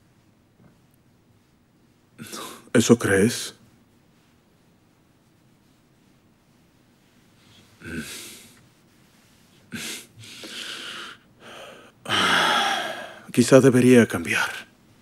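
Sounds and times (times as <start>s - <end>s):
man breathing heavily: 7.6s - 8.6s, 9.7s - 13.3s.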